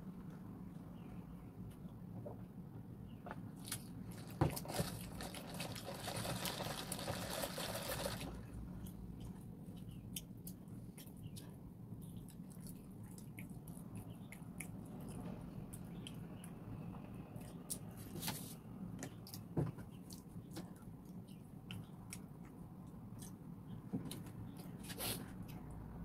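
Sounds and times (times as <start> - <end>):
chewing: 3.6 - 18.1, 19.1 - 23.5.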